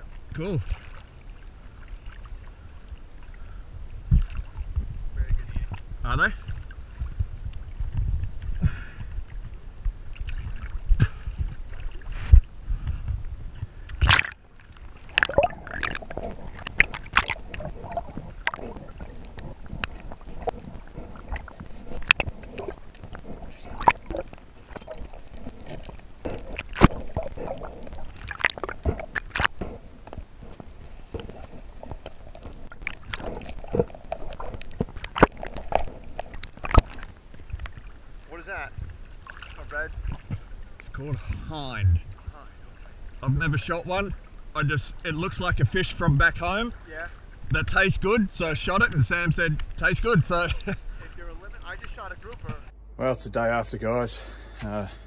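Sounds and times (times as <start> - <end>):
sea water sloshing: 0.0 - 52.3
muffled underwater sound: 0.0 - 52.7
underwater clicks and knocks: 15.0 - 37.9.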